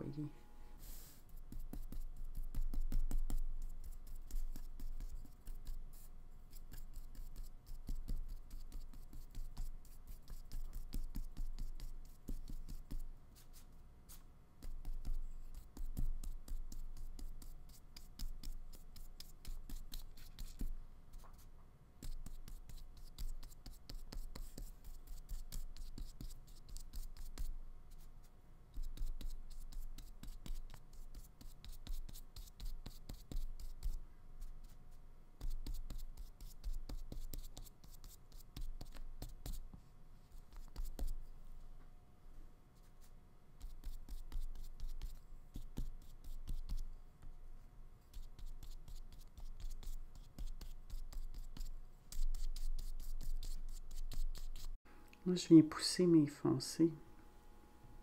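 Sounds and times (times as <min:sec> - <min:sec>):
paintbrush scrubbing on paper: 0:00.7 - 0:39.6, 0:48.1 - 0:54.8.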